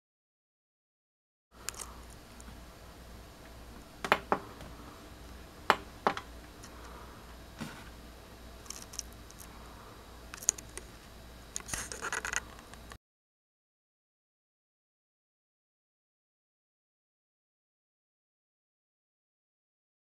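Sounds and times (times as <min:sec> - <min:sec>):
scratching and rubbing: 0:11.6 - 0:12.6.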